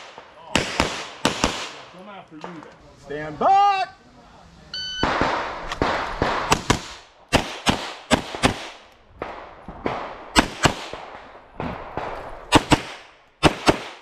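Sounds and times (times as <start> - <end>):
pistol shots echoing: 0.0 - 1.9, 5.0 - 14.0.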